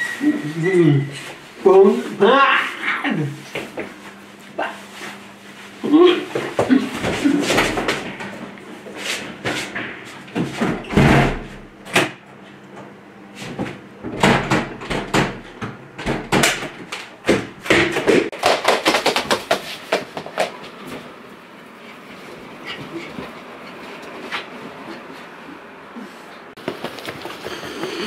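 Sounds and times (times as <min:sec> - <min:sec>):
fast run of knocks: 0:18.3 - 0:20.6, 0:26.6 - 0:28.0.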